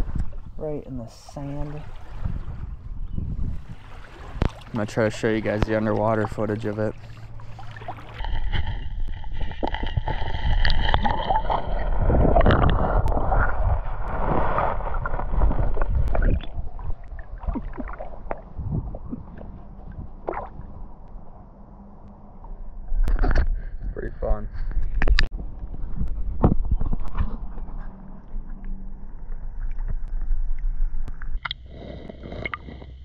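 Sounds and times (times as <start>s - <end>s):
light water splashes: 0.0s - 2.7s, 3.5s - 13.1s, 15.0s - 21.2s
muffled underwater rumble: 0.0s - 33.0s
water gurgling and sloshing: 0.0s - 33.0s.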